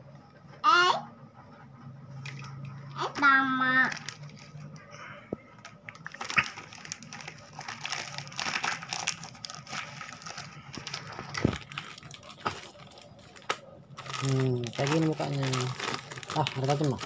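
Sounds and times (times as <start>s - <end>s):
plastic packaging crinkling: 2.2s - 4.9s, 5.5s - 17.0s.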